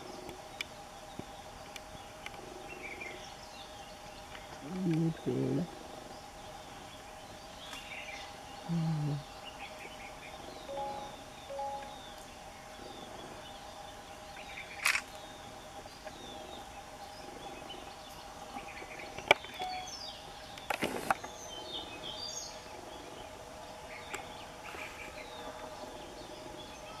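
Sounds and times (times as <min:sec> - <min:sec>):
birds chirping: 0:00.0 - 0:27.0
steady hum: 0:08.2 - 0:14.3.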